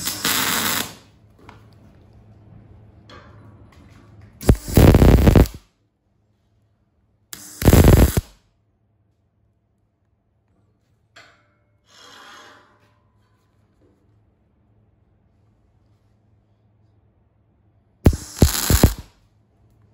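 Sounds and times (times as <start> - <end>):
welding arc crackling: 0.0 - 1.1, 4.4 - 5.6, 7.4 - 8.4, 18.0 - 19.1.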